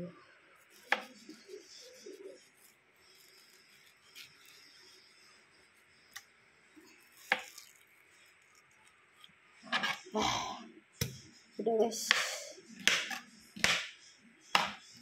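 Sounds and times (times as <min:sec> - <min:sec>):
knife scraping soft fruit: 0:00.6 - 0:06.2, 0:06.8 - 0:10.1.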